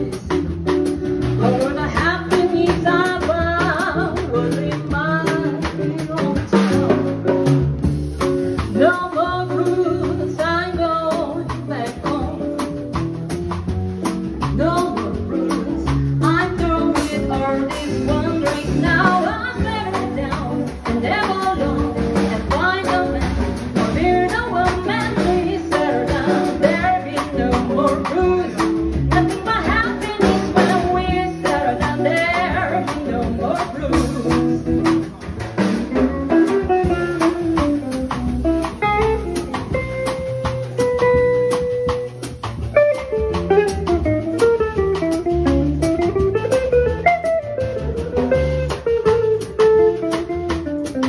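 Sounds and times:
woman singing into microphone: 0.0 - 7.3, 8.7 - 12.8, 14.6 - 35.0
acoustic guitar: 0.0 - 51.0
drum kit strokes: 0.0 - 51.0
upright bass: 0.0 - 51.0.

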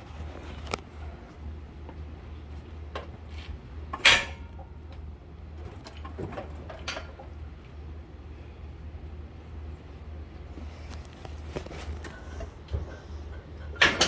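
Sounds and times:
loud ringing clank: 4.0 - 4.7.

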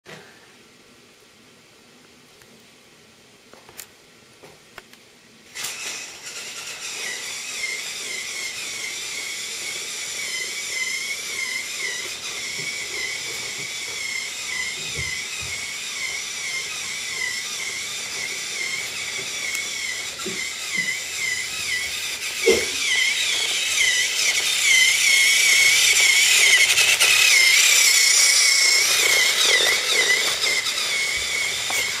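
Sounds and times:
small motor whine: 5.5 - 32.0.

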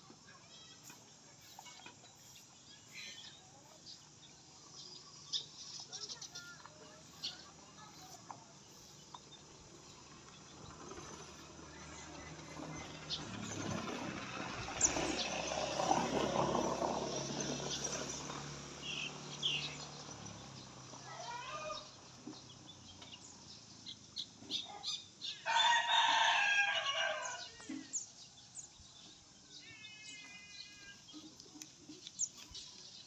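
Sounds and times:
bird calls: 0.5 - 15.4
rooster crowing: 25.4 - 27.5.

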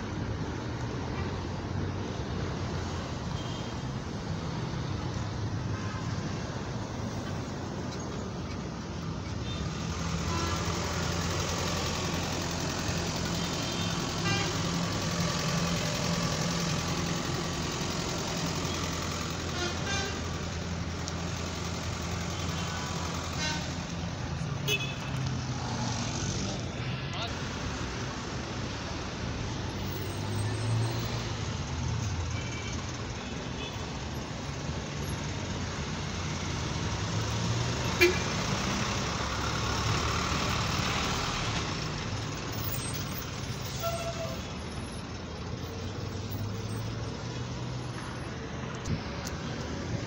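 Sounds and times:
traffic rumble: 0.0 - 50.0
car horn toots: 24.6 - 25.1.

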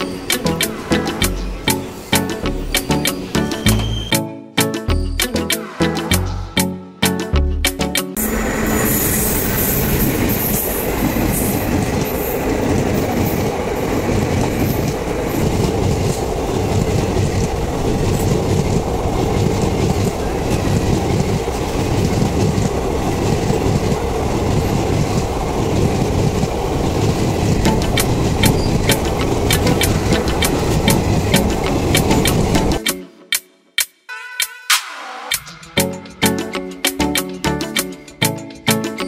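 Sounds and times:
wheels clacking over rail joints: 0.0 - 3.9, 9.8 - 32.9
train coaches rumbling: 0.0 - 4.2, 8.2 - 32.8.

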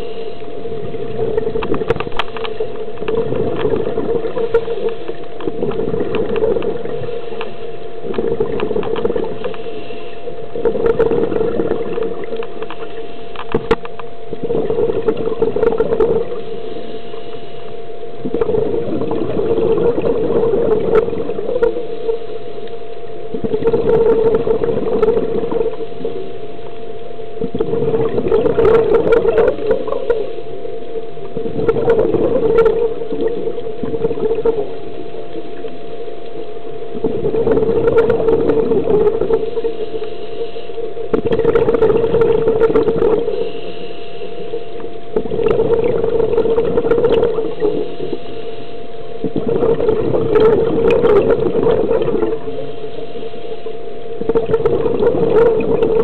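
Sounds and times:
exhaled bubbles underwater: 0.0 - 56.0
steady low hum: 0.0 - 56.0.

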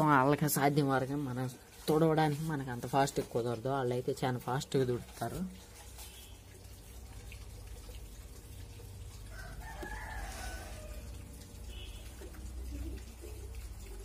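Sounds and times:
low steady background rumble: 0.0 - 14.0
rooster crowing: 9.3 - 11.2.

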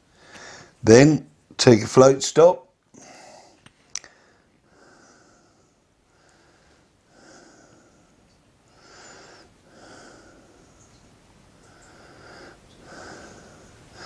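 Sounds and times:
man breathing heavily through nose: 0.0 - 0.8, 2.9 - 10.9, 11.6 - 14.0.

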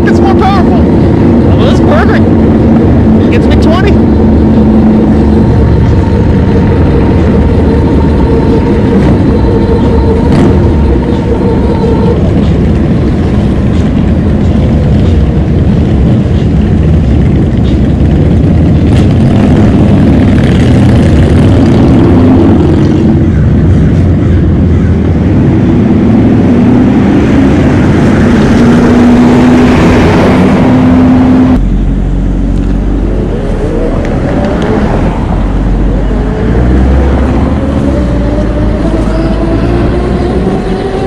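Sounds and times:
faint steady whine: 0.0 - 18.6
wind buffeting microphone: 0.0 - 41.0.

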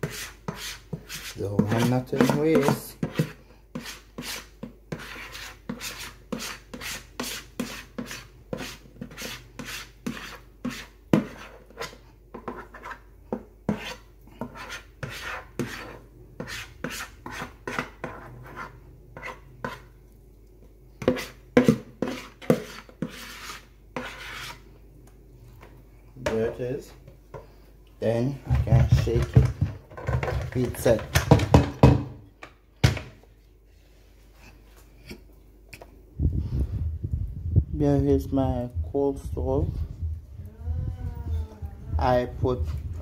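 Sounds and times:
metal spoon scraping plastic bowl: 0.0 - 13.0, 21.0 - 24.6.

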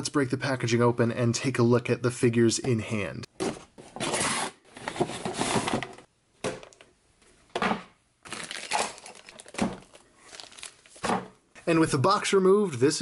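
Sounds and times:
packaging crinkling and rustling: 8.2 - 11.2.

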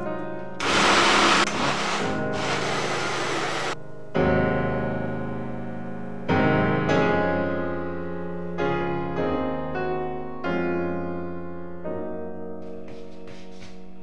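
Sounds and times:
solo piano music: 0.0 - 12.8
blender running: 0.6 - 3.8.

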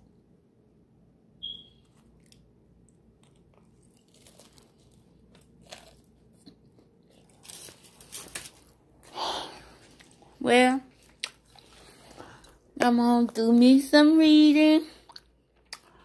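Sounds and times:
short high-pitched ping: 1.4 - 1.8
person chewing pizza crust crunching: 1.8 - 12.7, 15.0 - 16.0.

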